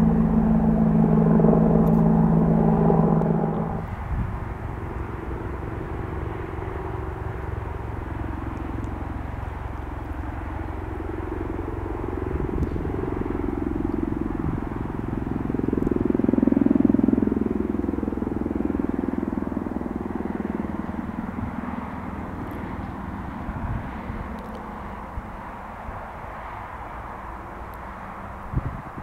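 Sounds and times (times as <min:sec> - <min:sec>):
helicopter flying overhead: 0:00.0 - 0:29.0.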